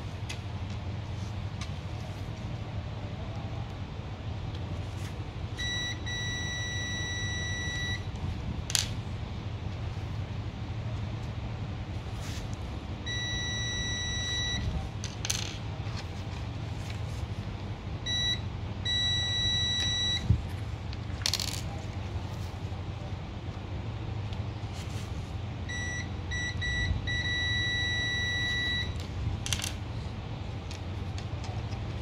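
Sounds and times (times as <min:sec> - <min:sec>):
low steady hum: 0:00.0 - 0:32.0
multimeter beeping: 0:05.6 - 0:08.1, 0:13.1 - 0:14.7, 0:18.1 - 0:20.3, 0:25.7 - 0:29.0.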